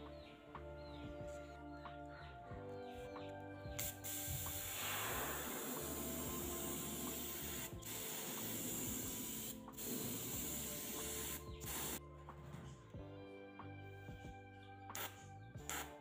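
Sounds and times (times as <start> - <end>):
airbrush spraying paint hiss: 3.7 - 12.0, 14.9 - 16.0.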